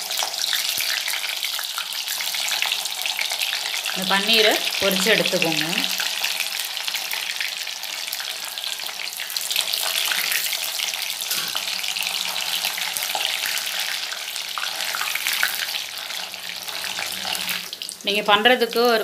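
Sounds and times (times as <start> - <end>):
deep-frying sizzle in oil: 0.0 - 19.0.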